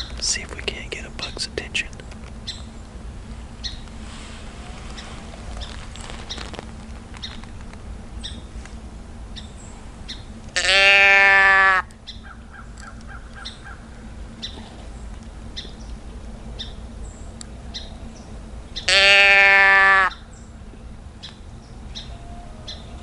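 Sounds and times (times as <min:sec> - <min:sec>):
deer bleat call: 0:10.6 - 0:11.9, 0:18.9 - 0:20.2.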